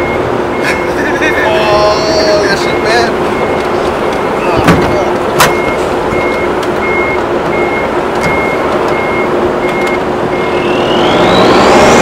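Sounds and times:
engine humming: 0.0s - 12.0s
reversing alarm beeping: 0.0s - 12.0s
motor whine rising in pitch: 10.3s - 12.0s.

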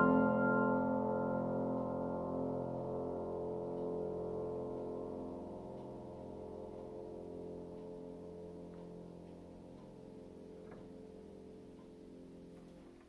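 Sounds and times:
piano chord ringing: 0.0s - 6.6s.

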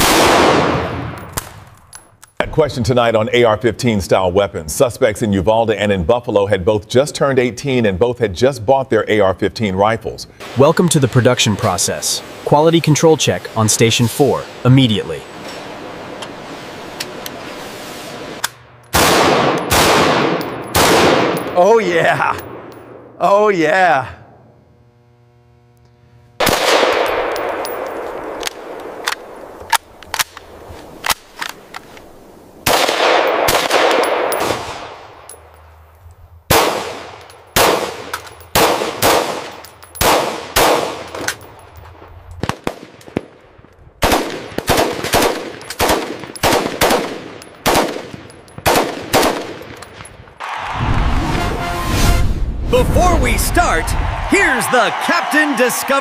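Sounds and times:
rifle gunfire with echoes: 0.0s - 1.6s, 18.9s - 21.6s, 26.4s - 29.6s, 32.6s - 35.0s, 36.5s - 41.1s, 44.0s - 50.1s.

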